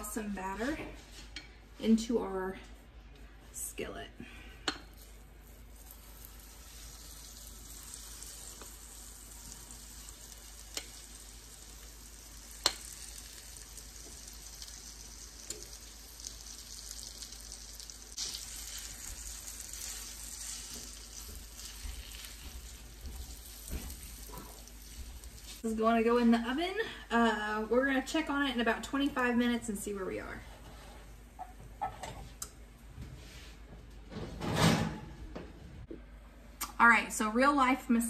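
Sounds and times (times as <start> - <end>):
grease sizzling in a skillet: 5.0 - 25.7.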